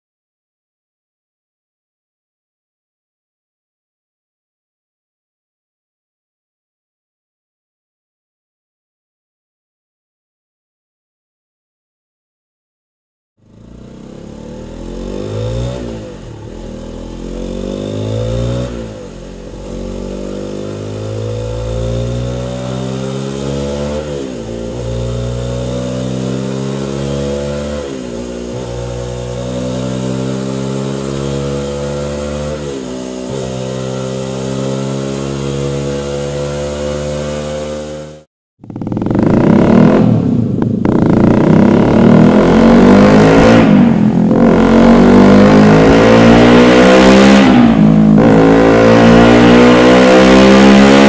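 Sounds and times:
motorcycle engine revving: 0:13.4 - 0:51.0.

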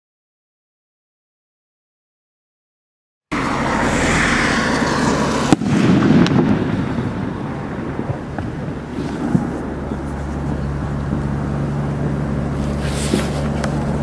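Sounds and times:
firework rocket whoosh: 0:03.3 - 0:10.6
low rumbling echo: 0:03.3 - 0:12.9
firework bang: 0:04.5 - 0:09.7
faint firework pops: 0:05.5 - 0:06.6.

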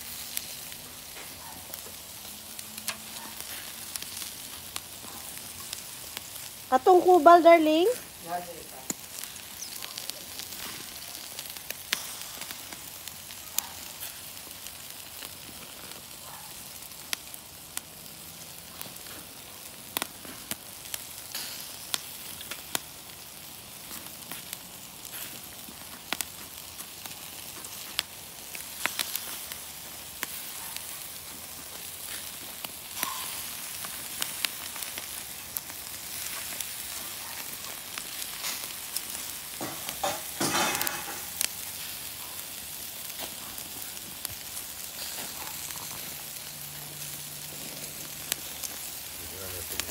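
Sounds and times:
meat sizzling on charcoal grill: 0:00.0 - 0:49.9
fat popping and crackling: 0:08.6 - 0:49.9.

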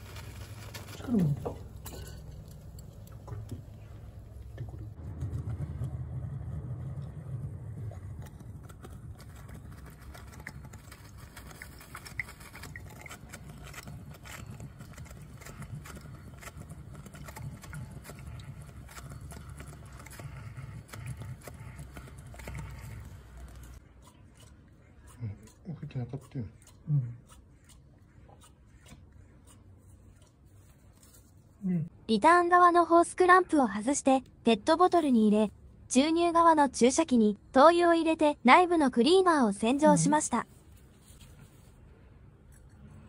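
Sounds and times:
foam crackling and bubbling: 0:00.0 - 0:23.8.

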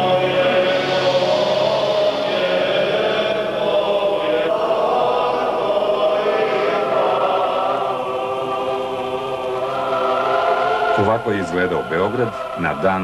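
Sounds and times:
choir singing long chords: 0:00.0 - 0:13.0.

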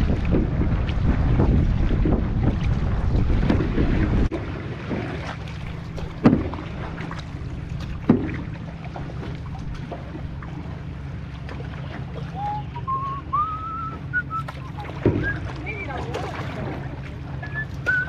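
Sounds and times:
paddle knocking against canoe: 0:00.0 - 0:18.0
steady low rumble: 0:00.0 - 0:18.0
person whistling: 0:12.3 - 0:15.5, 0:17.4 - 0:18.0.

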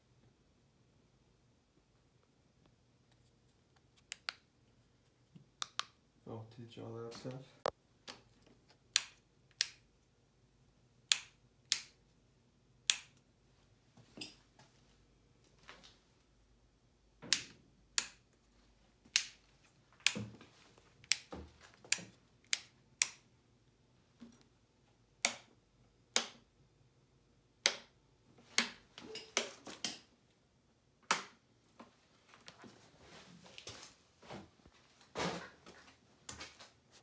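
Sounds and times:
sharp clicks and taps: 0:04.0 - 0:04.5, 0:05.3 - 0:06.0.

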